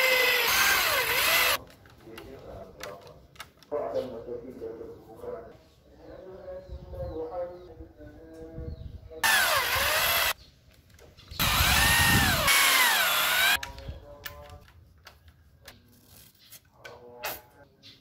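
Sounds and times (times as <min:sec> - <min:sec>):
electric drill drilling into wood: 0:00.0 - 0:01.6, 0:09.2 - 0:10.4, 0:11.4 - 0:13.6
light clicks and handling: 0:01.6 - 0:03.7.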